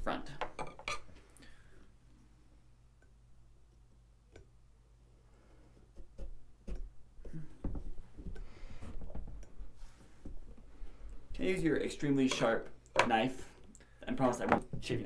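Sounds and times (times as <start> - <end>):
faint steady hum: 0.0 - 15.0
carving tools tapping pumpkin: 5.8 - 8.4.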